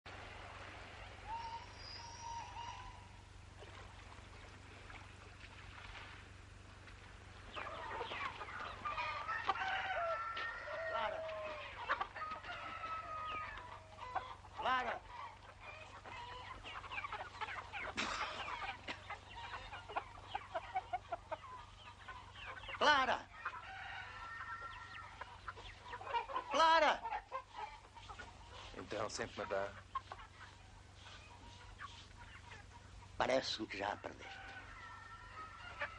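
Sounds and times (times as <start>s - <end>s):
chickens clucking and squawking: 0.1s - 5.2s, 6.3s - 35.9s
rooster crowing: 9.1s - 14.1s, 23.5s - 25.2s, 34.0s - 35.9s.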